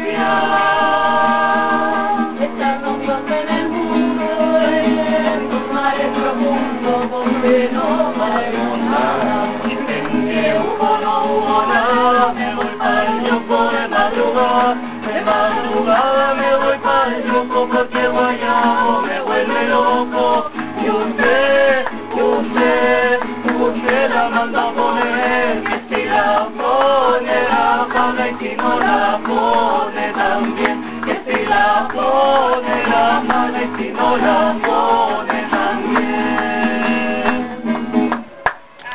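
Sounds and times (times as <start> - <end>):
people singing: 0.0 - 38.1
acoustic guitar strumming: 0.0 - 38.9.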